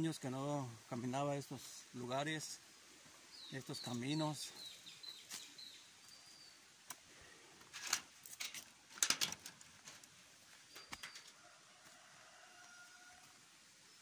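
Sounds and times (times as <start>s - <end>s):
faint high bird chirps: 3.3s - 6.7s, 10.6s - 11.5s.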